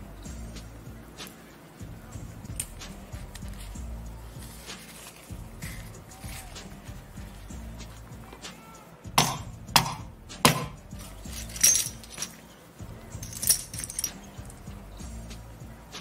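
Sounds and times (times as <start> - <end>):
disc crunching and crackling: 2.5 - 6.7.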